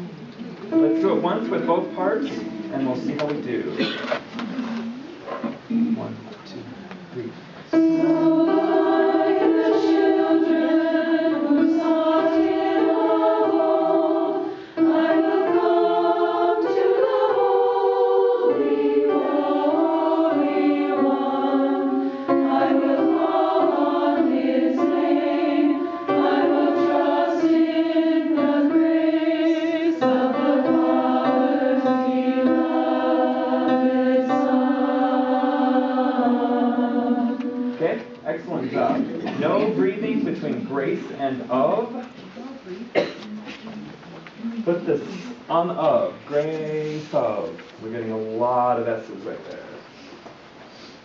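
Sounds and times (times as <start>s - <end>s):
women's choir singing a hymn: 0.7s - 4.0s, 7.7s - 41.4s.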